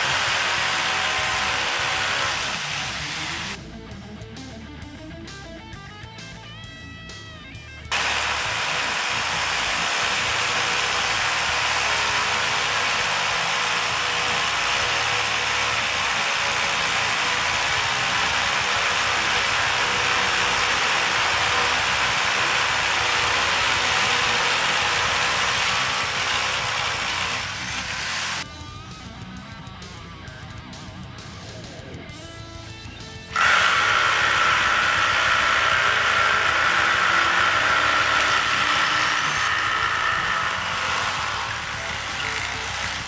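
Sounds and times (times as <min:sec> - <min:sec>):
rotary hammer drilling concrete: 0:00.0 - 0:03.6, 0:07.9 - 0:28.5, 0:33.3 - 0:43.0.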